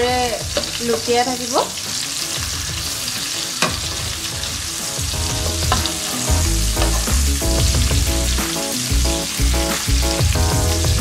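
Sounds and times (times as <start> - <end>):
chicken sizzling in oil: 0.0 - 11.0
spatula scraping and tapping pan: 5.6 - 7.2.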